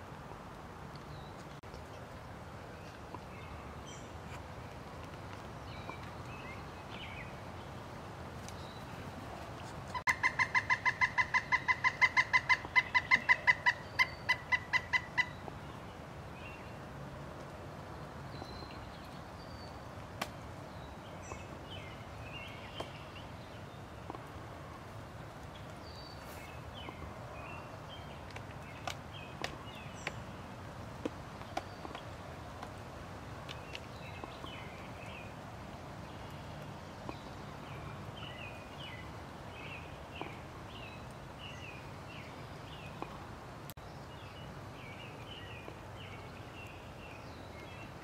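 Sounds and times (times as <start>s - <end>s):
woodpecker calling: 9.9s - 15.5s.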